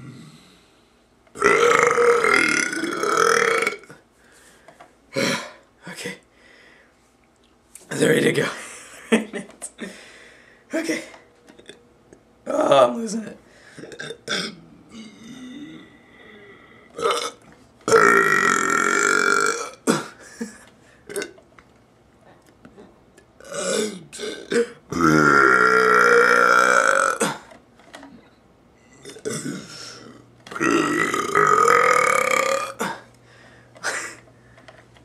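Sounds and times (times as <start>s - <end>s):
man burping: 1.4s - 4.0s, 5.1s - 5.6s, 13.8s - 16.0s, 16.9s - 21.4s, 23.4s - 27.5s, 28.9s - 33.1s.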